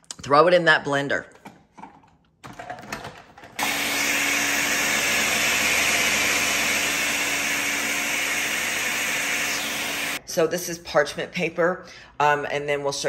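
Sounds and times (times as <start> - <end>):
blender motor whirring: 3.6 - 10.2.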